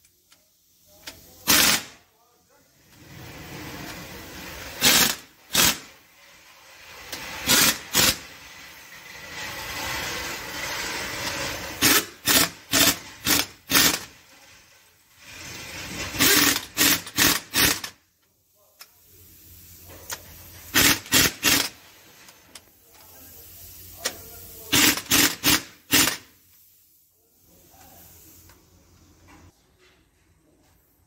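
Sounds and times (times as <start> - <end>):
pneumatic impact wrench bursts: 1.0 - 2.1, 3.9 - 18.0, 20.1 - 22.6, 24.0 - 26.6
air hiss: 22.7 - 29.1.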